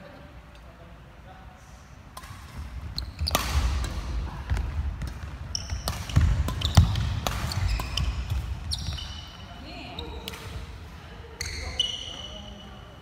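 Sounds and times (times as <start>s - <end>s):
rackets striking shuttlecock: 2.1s - 9.4s, 10.2s - 10.7s
shoe squeaks: 2.9s - 3.6s, 5.5s - 10.3s, 11.4s - 13.0s.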